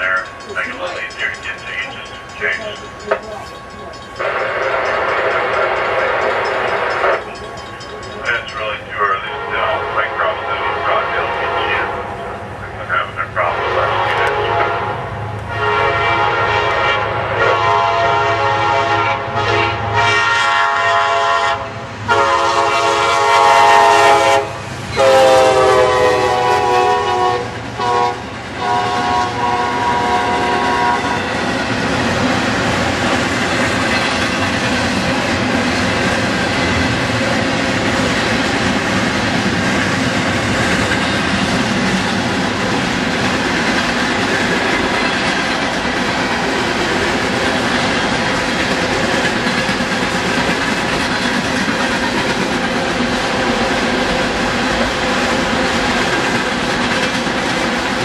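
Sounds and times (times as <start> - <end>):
freight cars rumbling: 0.0 - 15.6, 29.3 - 58.0
locomotive horn blasts: 9.2 - 12.4, 13.4 - 31.3.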